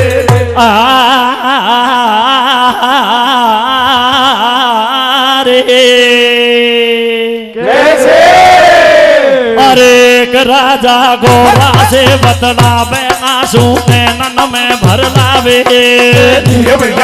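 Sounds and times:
man singing wordless phrase: 0:00.0 - 0:07.6, 0:09.5 - 0:17.0.

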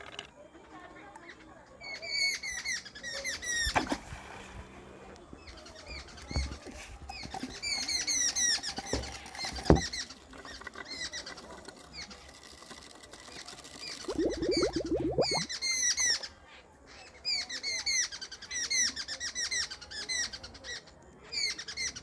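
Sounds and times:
high-pitched falling chirps: 0:14.1 - 0:15.5.

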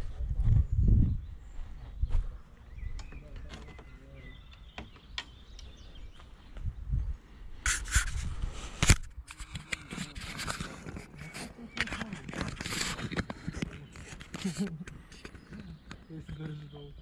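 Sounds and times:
wind rumble on microphone: 0:00.0 - 0:04.8, 0:05.8 - 0:14.3.

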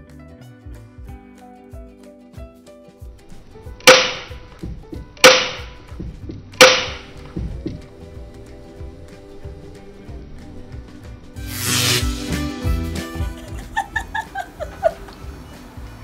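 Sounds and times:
background music: 0:00.0 - 0:16.0
loud sharp cracks: 0:03.8 - 0:07.4.

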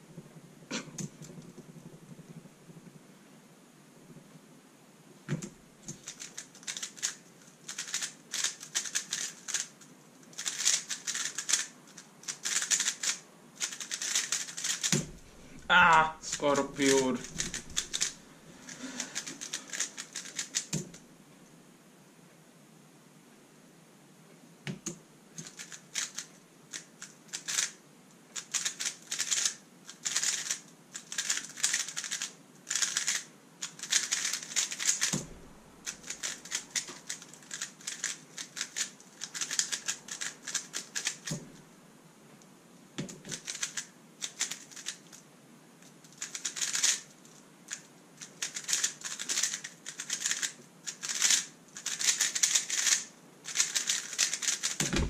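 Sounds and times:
speedcube clicking: 0:05.4 - 0:15.2, 0:17.2 - 0:18.2, 0:19.2 - 0:21.0, 0:24.7 - 0:35.2, 0:35.8 - 0:41.4, 0:43.1 - 0:45.2, 0:46.1 - 0:47.1, 0:47.7 - 0:54.8
soft thuds: 0:54.8 - 0:55.0.

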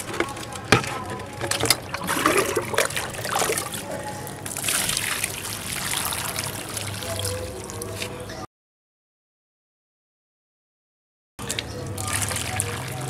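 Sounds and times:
water pouring onto soil: 0:02.0 - 0:08.2, 0:11.4 - 0:13.0.

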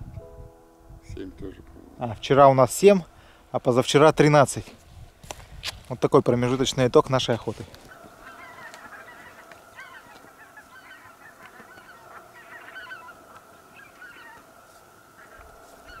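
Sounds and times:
geese honking in flight: 0:07.8 - 0:16.0.

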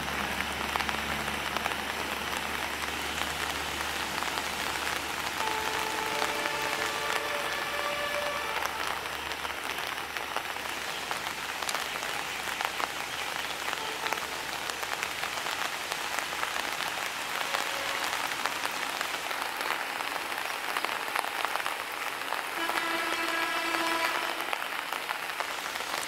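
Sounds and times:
steady rain falling: 0:00.0 - 0:26.0.

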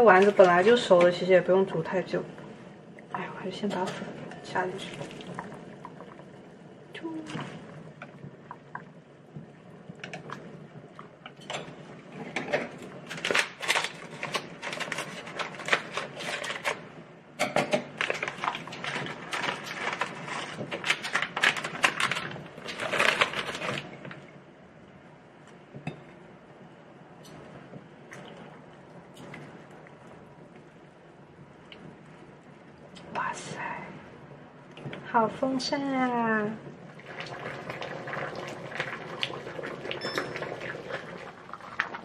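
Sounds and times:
plastic sachet crinkling: 0:18.1 - 0:24.0.

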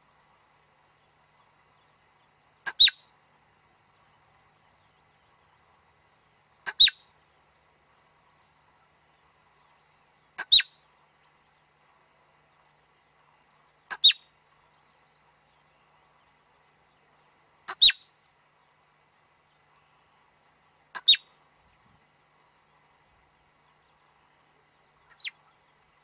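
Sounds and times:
marmot high calls: 0:02.6 - 0:03.1, 0:06.6 - 0:07.1, 0:10.4 - 0:10.8, 0:13.9 - 0:14.3, 0:17.7 - 0:18.1, 0:20.9 - 0:21.3, 0:25.1 - 0:25.7.

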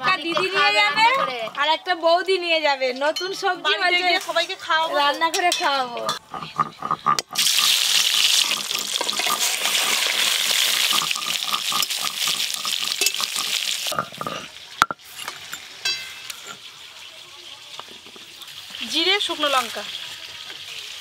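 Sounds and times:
fish sizzling in hot oil: 0:07.3 - 0:21.0
clinks: 0:14.8 - 0:16.6.

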